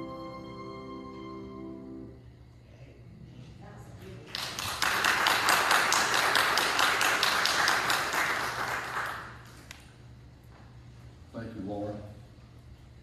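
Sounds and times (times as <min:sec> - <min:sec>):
audience applauding: 0:04.3 - 0:09.6.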